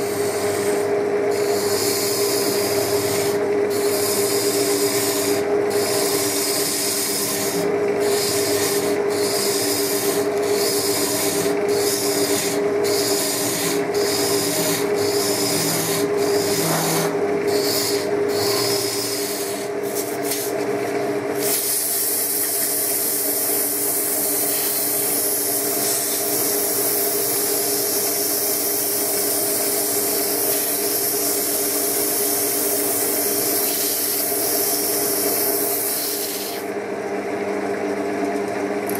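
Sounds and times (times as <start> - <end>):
wood lathe humming: 0.0 - 36.9
sandpaper hissing on turning wood: 1.4 - 20.6, 21.4 - 36.6
gouge scraping wood: 3.8 - 20.6.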